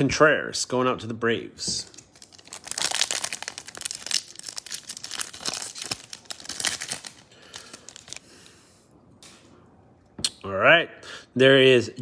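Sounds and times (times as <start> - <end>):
foil wrapper crinkling: 1.9 - 8.3.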